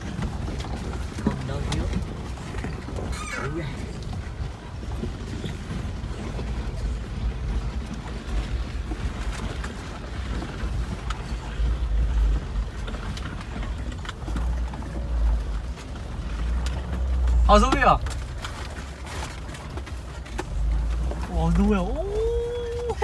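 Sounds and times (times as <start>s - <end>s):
knocks and rattles in cab: 0.0s - 22.1s
vehicle engine and road rumble: 0.0s - 23.0s.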